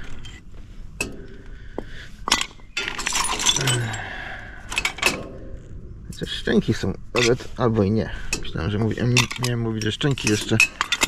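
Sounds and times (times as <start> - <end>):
scrap metal clinking and scraping: 0.0 - 1.5, 2.1 - 5.7, 8.3 - 11.0.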